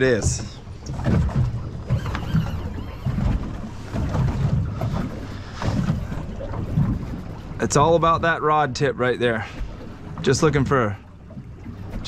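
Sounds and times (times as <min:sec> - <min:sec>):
wind buffeting microphone: 0:00.0 - 0:08.4
boat drifting on water: 0:00.0 - 0:12.0.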